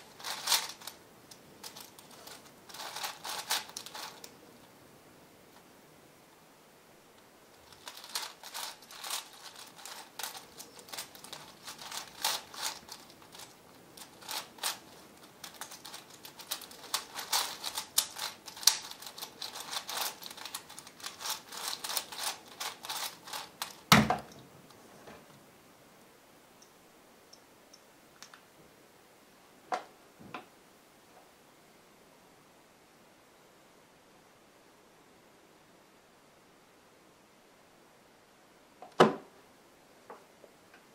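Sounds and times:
puzzle cube plastic clicking: 7.7 - 24.4.

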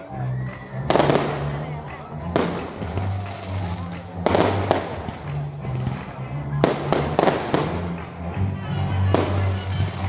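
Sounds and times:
music with steady bass: 0.0 - 10.0
fireworks bursting: 0.9 - 6.0, 6.6 - 8.1, 9.1 - 10.0.

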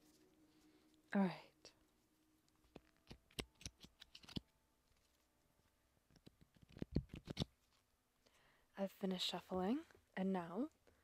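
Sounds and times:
cards being shuffled: 2.6 - 5.2, 6.1 - 7.8.

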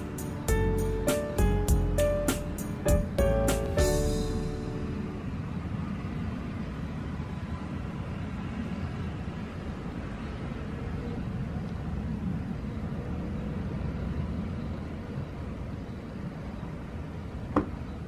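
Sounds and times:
low rumbling noise: 0.0 - 7.5.

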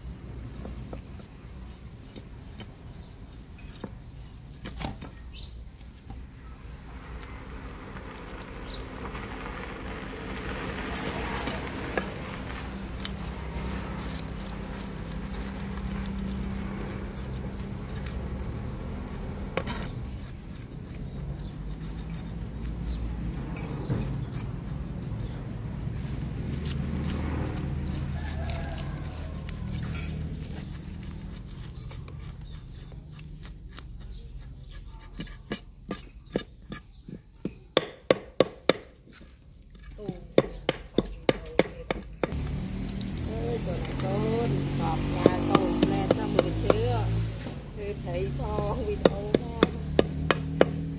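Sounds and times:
knife scraping fish scales: 10.6 - 37.2, 38.6 - 47.6
knife chopping on wooden block: 35.1 - 42.4, 45.2 - 46.8, 49.0 - 50.9.

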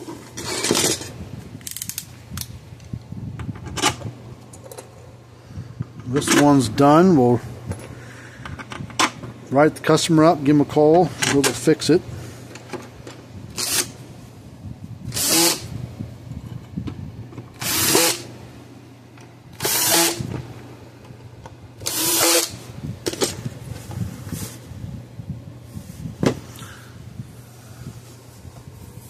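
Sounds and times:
cordless drill driving screws: 13.6 - 13.9, 15.1 - 15.7, 17.6 - 18.3, 19.6 - 20.3, 21.8 - 22.6.

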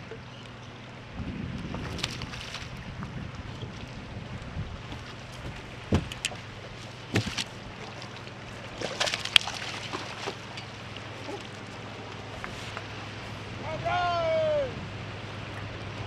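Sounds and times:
low steady hum: 0.0 - 16.0
knocks: 5.4 - 6.2
fish splashing at surface: 7.1 - 10.6.

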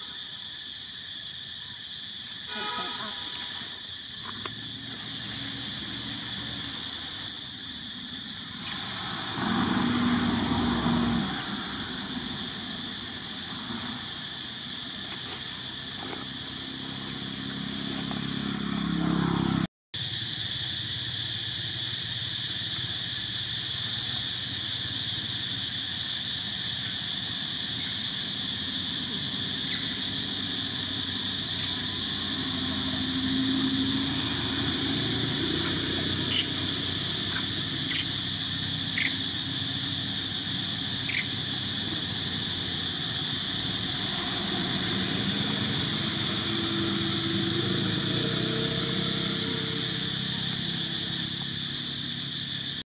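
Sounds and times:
insect drone: 0.0 - 52.9
distant engine rumble: 4.0 - 19.7, 27.3 - 52.8.

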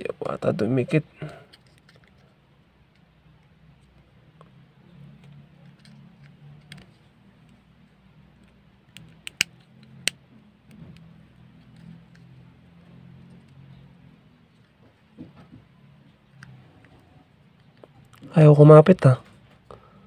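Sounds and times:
plastic clicks and taps: 8.4 - 11.1.

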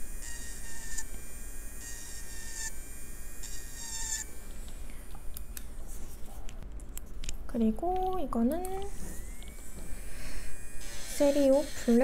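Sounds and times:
electric nail drill whine: 0.0 - 5.8, 8.8 - 12.0.

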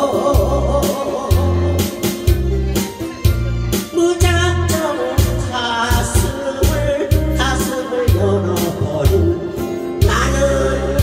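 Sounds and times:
woman singing into a microphone: 0.0 - 2.0, 3.8 - 11.0
acoustic guitar: 0.0 - 11.0
bass and drum beat: 0.0 - 11.0.

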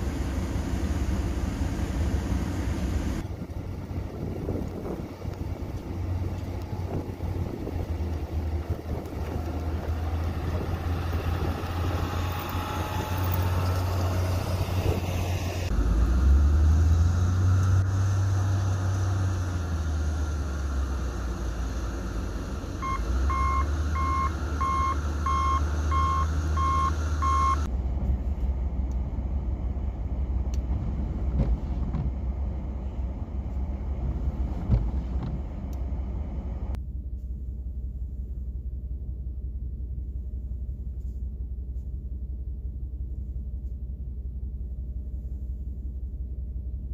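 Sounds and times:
heavy diesel engines humming: 0.0 - 46.9
reversing alarm beeping: 22.8 - 27.7.

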